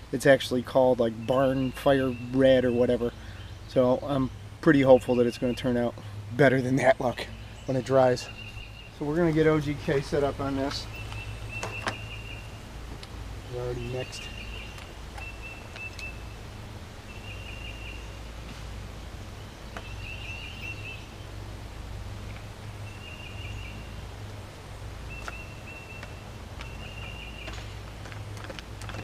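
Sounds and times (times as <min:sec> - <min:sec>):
steady low rumble: 0:00.0 - 0:29.0
bird trilling: 0:13.5 - 0:16.4.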